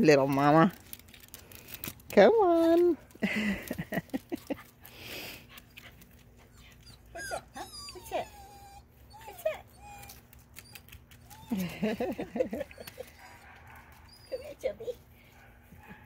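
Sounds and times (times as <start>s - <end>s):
puppy whimpering: 5.4s - 15.0s.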